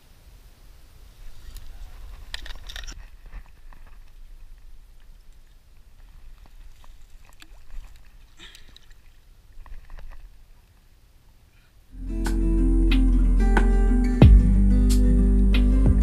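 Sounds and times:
light clicks and rustles: 1.2s - 10.9s
soft water sounds: 3.0s - 11.9s.

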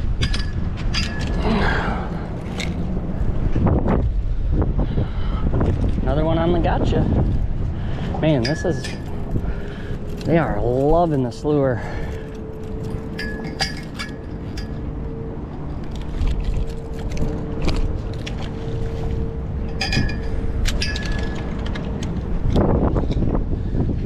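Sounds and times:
steady background hum: 0.0s - 24.0s
metal pliers clinking on hook: 8.3s - 10.8s, 12.6s - 14.8s, 19.7s - 22.6s.

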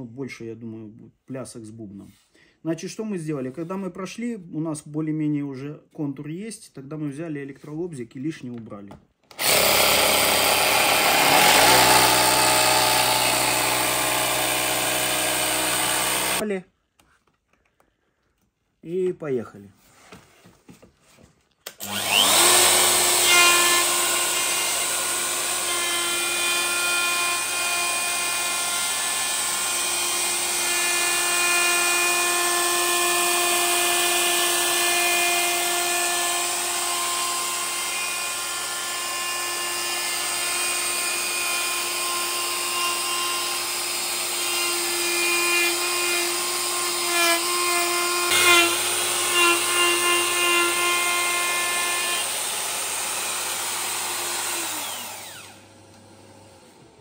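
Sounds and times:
router bit cutting wood: 9.3s - 16.4s, 21.7s - 57.0s
router motor whining: 9.3s - 16.4s, 21.7s - 57.0s.

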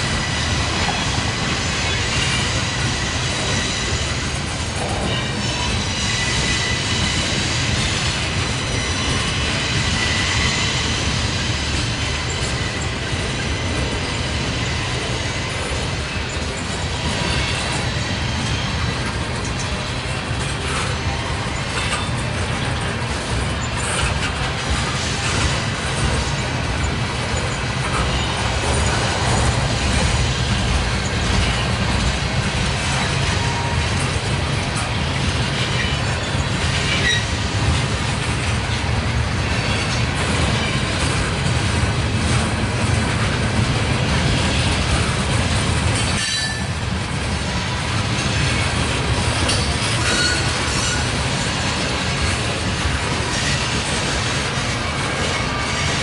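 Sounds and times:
train wheels rumbling on rails: 0.0s - 56.0s
wheel squeals: 32.9s - 37.4s, 49.4s - 51.2s.

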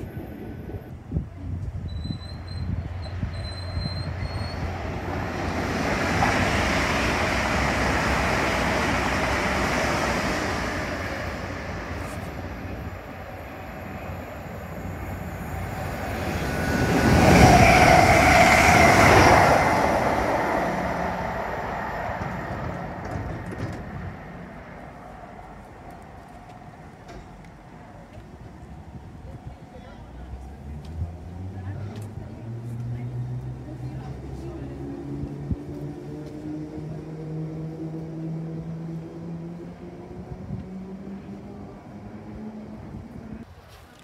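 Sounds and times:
train whine: 0.0s - 30.8s, 31.4s - 43.5s
electric trains passing: 0.0s - 43.5s.

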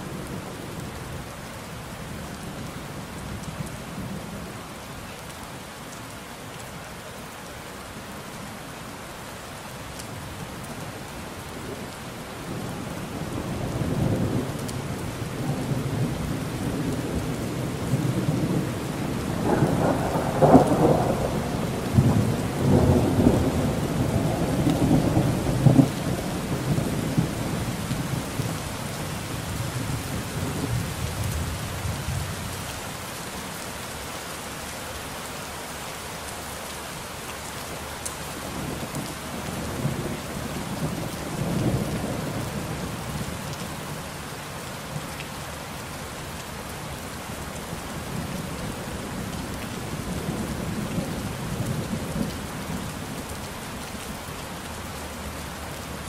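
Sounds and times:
steady rain falling: 0.0s - 56.0s
rolling thunder: 16.0s - 27.7s.

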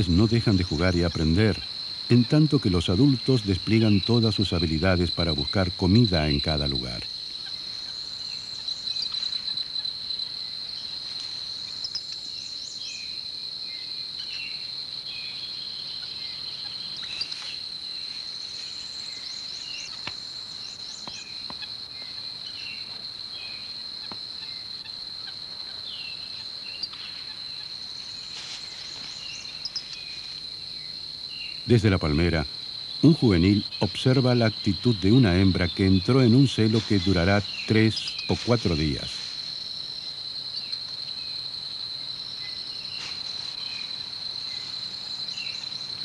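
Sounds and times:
high-pitched insect drone: 15.6s - 46.0s.

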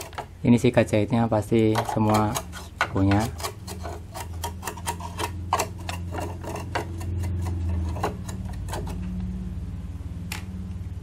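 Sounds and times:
steady low hum: 0.0s - 11.0s
brush bristles scrubbing metal: 1.6s - 9.1s.

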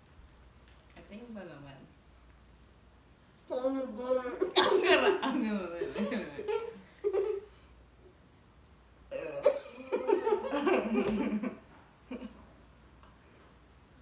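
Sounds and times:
muffled laughing and giggling: 9.4s - 12.4s.

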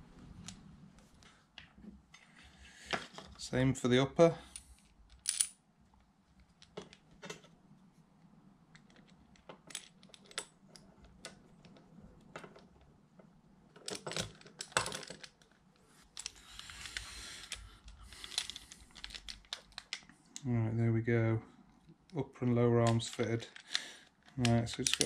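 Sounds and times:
small plastic parts clicking: 13.8s - 20.5s, 22.8s - 25.0s.

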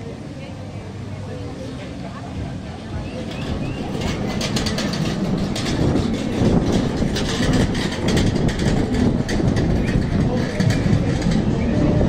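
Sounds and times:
heavy vehicle rumbling past: 0.0s - 12.0s
rattling clatter: 3.3s - 12.0s.

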